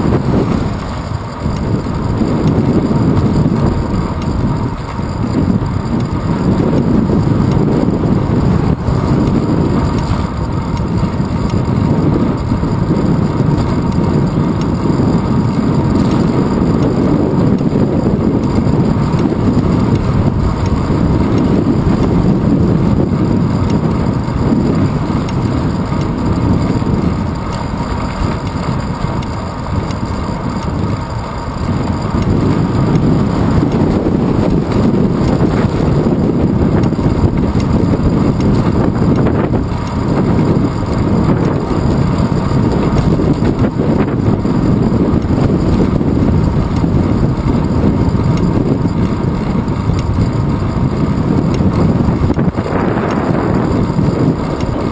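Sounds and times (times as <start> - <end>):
wind buffeting microphone: 0.0 - 54.9.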